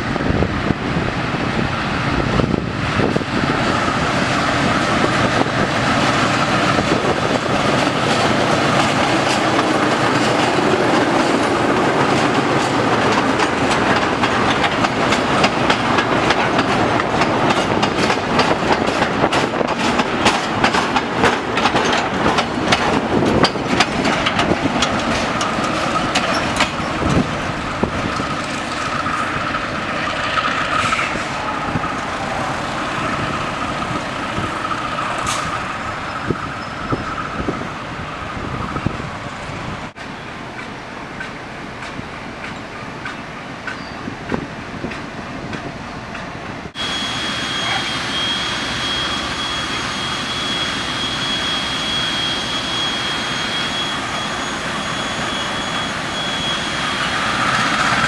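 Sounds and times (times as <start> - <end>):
diesel locomotive engine: 0.0 - 58.0
wheels clicking over rail joints: 6.7 - 31.2.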